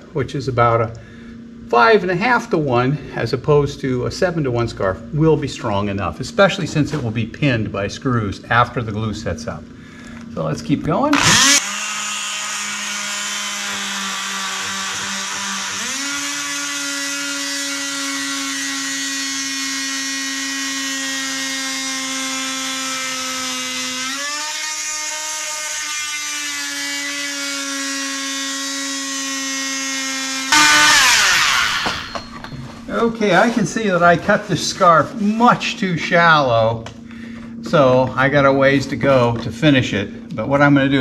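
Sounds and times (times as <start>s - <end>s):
power tool cutting wood: 11.1s - 32.5s.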